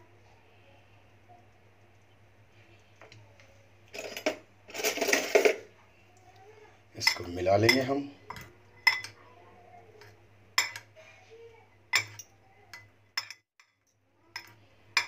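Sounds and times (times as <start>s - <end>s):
metal spoons clinking on glass bowl: 7.0s - 9.2s, 10.0s - 10.9s, 11.9s - 15.0s.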